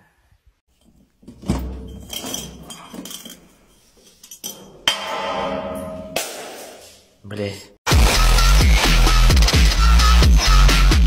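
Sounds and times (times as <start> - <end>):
glass bottle clinking down metal stairs: 0.7 - 6.3.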